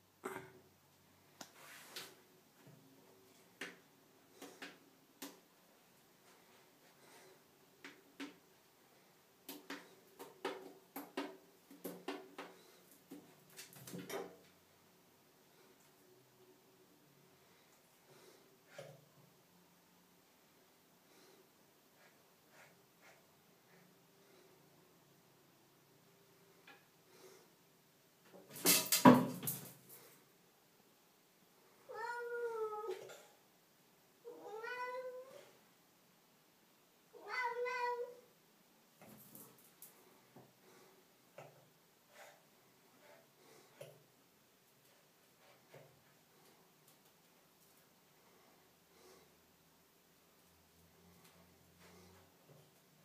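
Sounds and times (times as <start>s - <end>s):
cat meowing: 31.9s - 33.0s, 34.3s - 35.4s, 37.2s - 38.2s.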